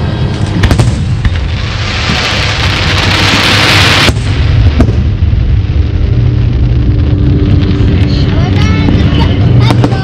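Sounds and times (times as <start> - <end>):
firework bangs: 0.0 - 10.0
firework hissing crackle: 0.0 - 10.0
steady low rumble: 0.0 - 10.0.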